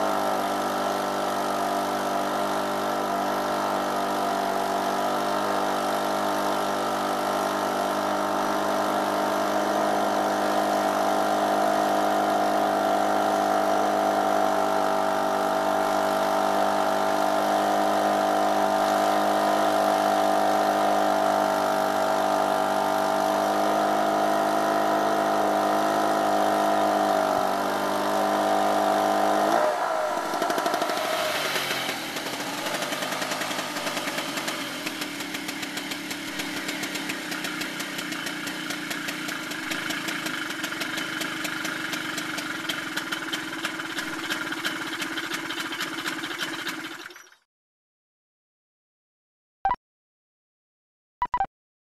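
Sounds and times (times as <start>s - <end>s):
small generator engine running: 0.0s - 47.4s.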